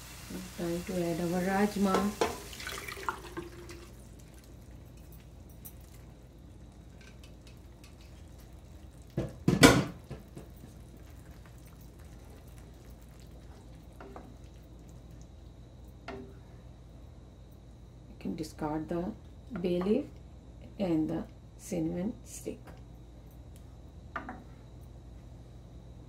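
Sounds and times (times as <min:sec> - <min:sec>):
pan simmering: 0:00.0 - 0:17.2
small clinks: 0:04.8 - 0:06.2.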